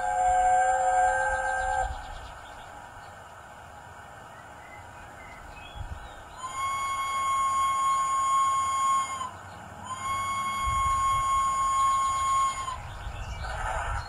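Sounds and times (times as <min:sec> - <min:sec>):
steam locomotive whistle: 0:00.0 - 0:02.0, 0:06.3 - 0:14.0.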